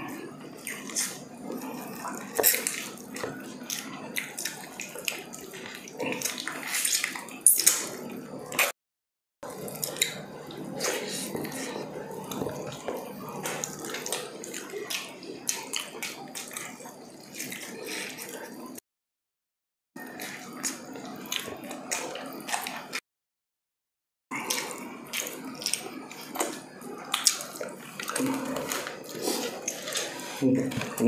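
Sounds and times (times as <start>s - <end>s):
wet chewing and lip smacking: 24.3s - 30.2s.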